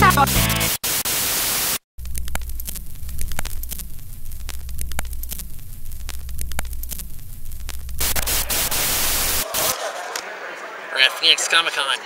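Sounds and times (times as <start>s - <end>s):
sharp clicks and crackle: 2.0s - 9.4s.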